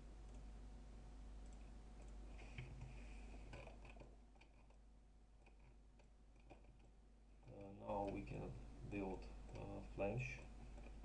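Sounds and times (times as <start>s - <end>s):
steady low hum: 0.0s - 11.0s
computer mouse clicks: 3.5s - 4.8s, 5.4s - 8.3s, 9.5s - 9.8s.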